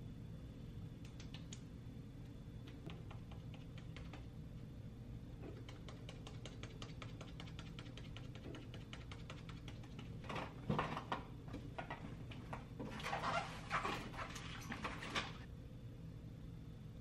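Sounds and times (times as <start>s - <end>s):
steady low hum: 0.0s - 17.0s
fingertips tapping makeup onto face: 2.8s - 4.3s, 5.4s - 10.5s.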